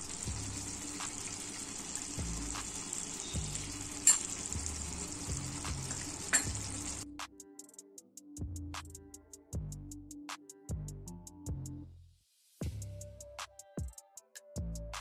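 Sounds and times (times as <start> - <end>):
food sizzling in a frying pan: 0.0 - 7.0.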